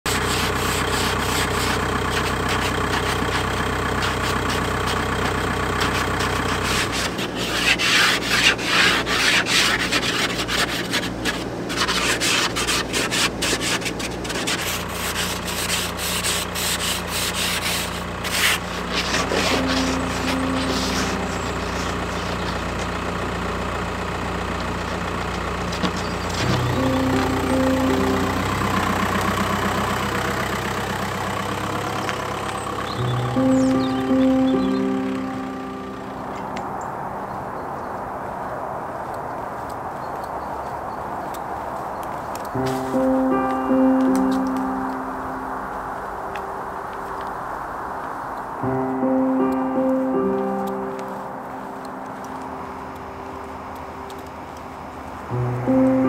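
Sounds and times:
car engine idling: 0.0s - 39.1s, 42.1s - 56.0s
ice scraper scraping windshield: 0.1s - 22.9s, 25.7s - 35.0s, 42.6s - 43.1s.

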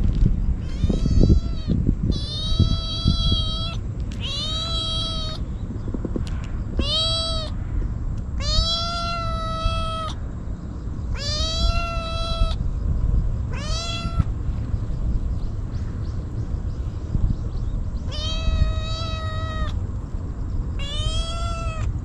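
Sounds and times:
kitten meowing: 0.6s - 5.4s, 6.8s - 7.6s, 8.4s - 10.2s, 11.1s - 12.6s, 13.5s - 14.3s, 18.1s - 19.8s, 20.8s - 21.9s.

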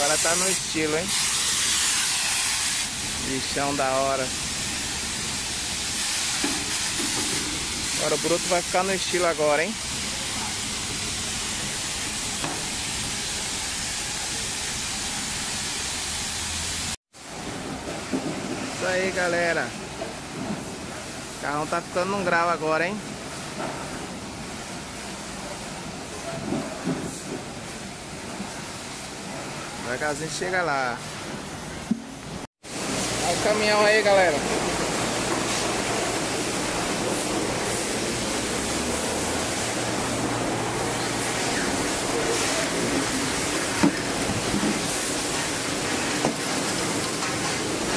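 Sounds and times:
pressure washer spraying water: 0.0s - 17.0s, 31.1s - 47.9s.

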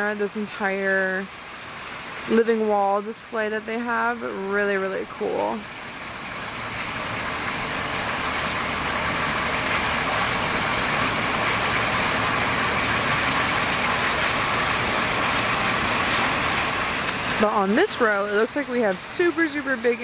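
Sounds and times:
water falling: 0.0s - 20.0s.

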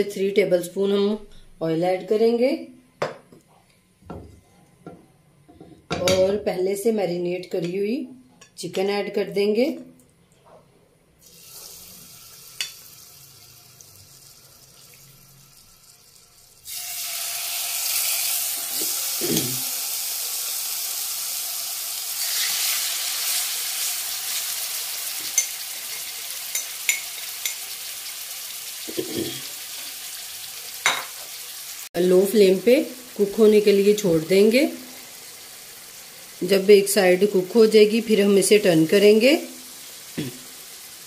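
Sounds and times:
chicken sizzling in hot oil: 11.2s - 41.0s.

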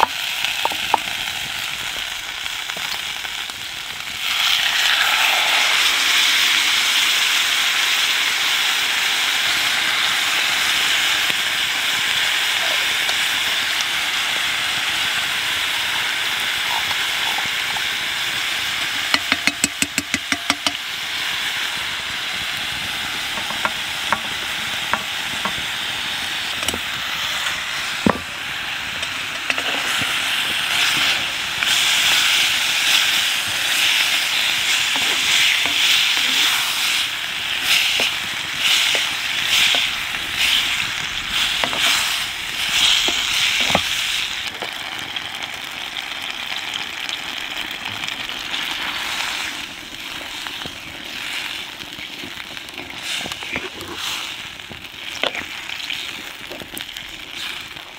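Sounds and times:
food sizzling in pot: 0.0s - 57.9s
spoon clicking in pot: 19.1s - 20.8s.

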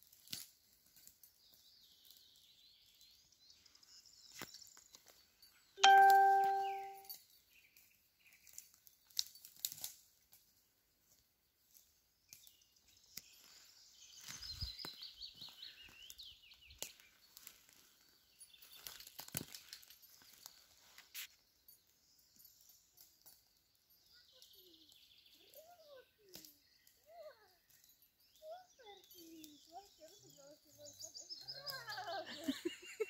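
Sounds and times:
birds chirping: 1.4s - 8.5s, 12.2s - 23.0s, 23.7s - 33.0s
ringing tone: 5.8s - 7.0s
footsteps on dry pine needles: 11.6s - 21.3s.

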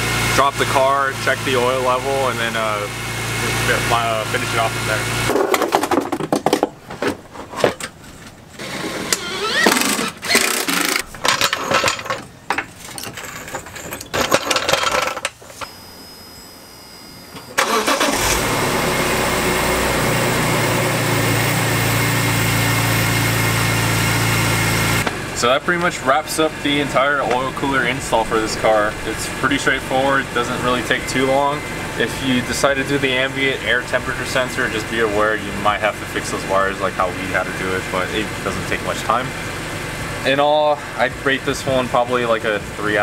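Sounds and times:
plastic knocks and clatter: 5.4s - 7.9s
car engine starting and idling: 17.3s - 43.0s.

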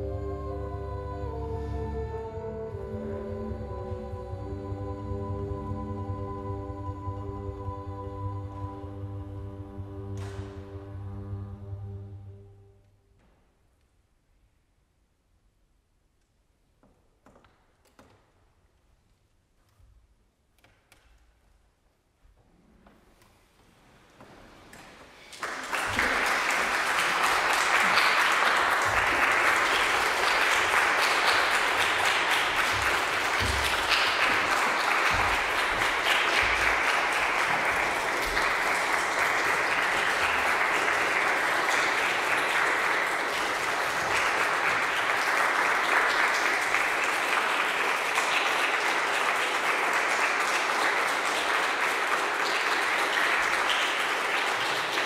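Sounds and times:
audience applauding: 24.7s - 55.0s.

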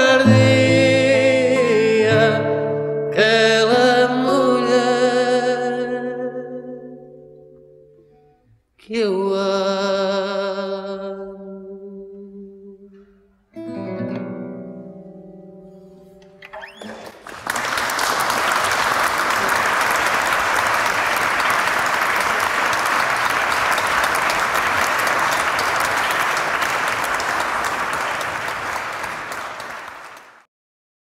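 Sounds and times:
audience applauding: 16.4s - 30.5s.

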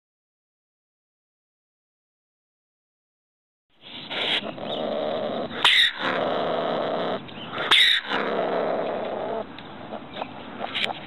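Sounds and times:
ringtail rough calls: 3.8s - 11.0s
ringtail sharp cries: 5.5s - 6.3s, 7.4s - 8.5s.

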